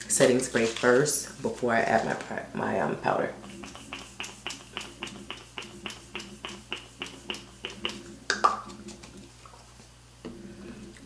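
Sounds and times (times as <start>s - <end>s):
pump bottle spraying: 3.4s - 9.3s.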